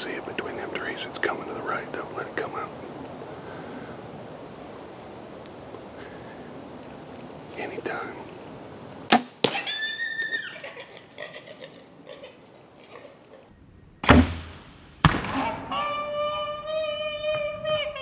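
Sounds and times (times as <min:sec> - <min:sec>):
arrow striking thwack: 0:09.1 - 0:09.6, 0:14.0 - 0:15.6
hog squealing: 0:09.5 - 0:12.3.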